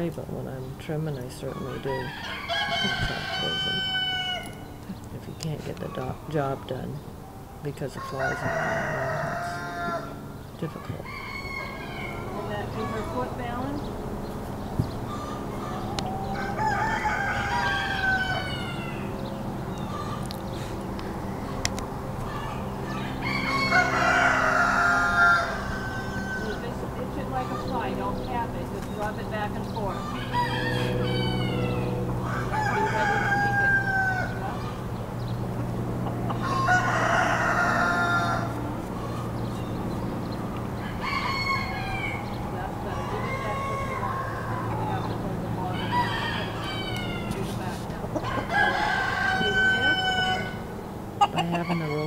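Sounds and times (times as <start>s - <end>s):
steady low hum: 0.0s - 52.0s
rooster crowing: 1.6s - 4.8s, 7.8s - 10.4s, 11.0s - 13.6s, 15.1s - 20.3s, 22.3s - 28.1s, 29.8s - 34.8s, 36.0s - 39.4s, 40.8s - 52.0s.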